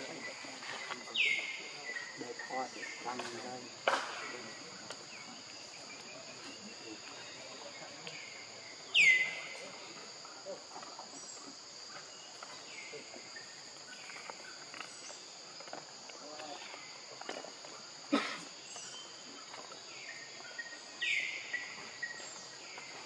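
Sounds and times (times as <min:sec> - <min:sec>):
insect call sweeping down: 0:00.0 - 0:05.4
insect chorus: 0:00.0 - 0:23.0.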